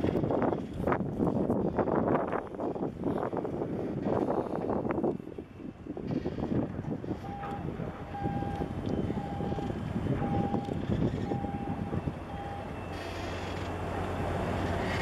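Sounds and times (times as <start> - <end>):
wind on microphone: 0.0 - 12.6
distant reversing beeper: 7.2 - 14.7.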